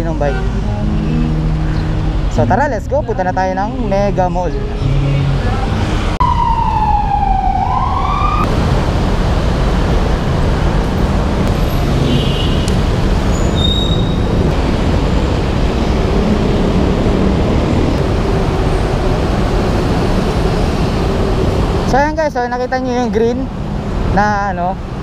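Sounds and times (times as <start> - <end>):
city traffic noise: 0.0 - 25.0
siren-like wail: 6.1 - 8.5
brief high squeaks: 13.3 - 14.3.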